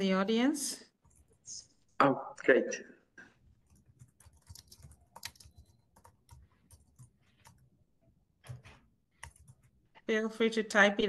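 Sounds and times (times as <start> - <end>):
keyboard typing clicks: 3.6 - 7.7, 8.4 - 9.7.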